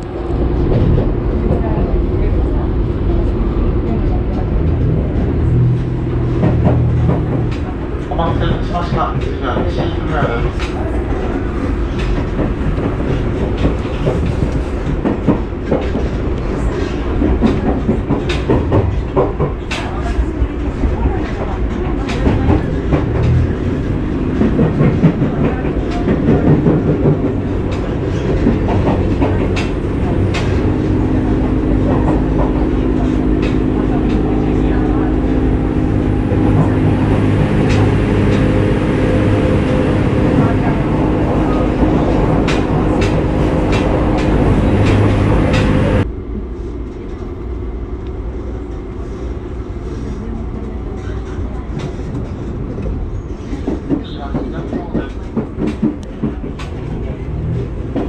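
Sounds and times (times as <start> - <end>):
train wheels rumbling: 0.0 - 58.0
wheels clacking over rail joints: 4.5 - 46.1.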